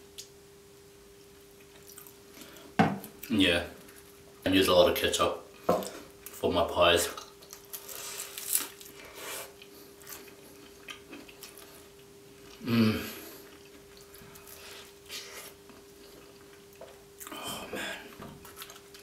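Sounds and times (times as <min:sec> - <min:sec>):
person chewing: 0:01.6 - 0:04.2, 0:07.2 - 0:19.0.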